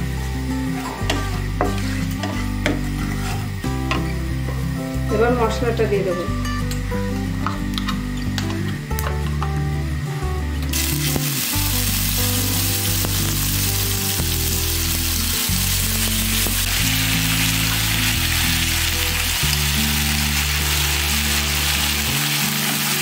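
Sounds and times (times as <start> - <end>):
spice paste sizzling in hot oil: 0.0 - 5.5, 10.7 - 23.0
background music: 0.0 - 23.0.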